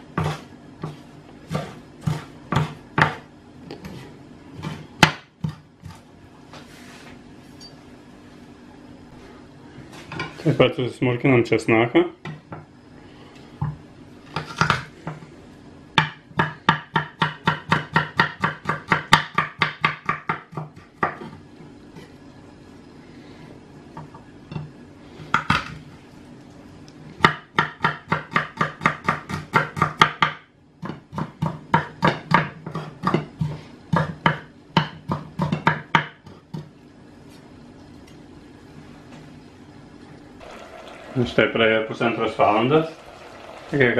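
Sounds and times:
knife chopping on wooden board: 0:00.1 - 0:04.0, 0:04.6 - 0:06.0, 0:16.0 - 0:21.4, 0:27.2 - 0:36.7.

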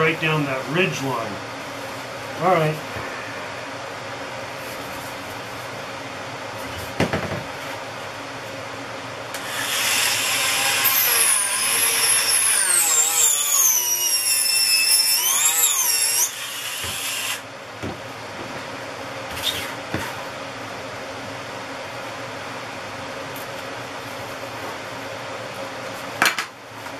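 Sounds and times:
air filtration unit hum: 0:00.0 - 0:26.9
rotary tool whining: 0:09.4 - 0:17.4.

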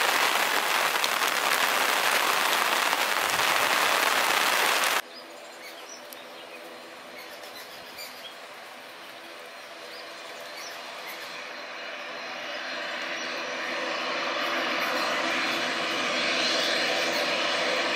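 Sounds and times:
rain on an umbrella: 0:00.0 - 0:05.0.

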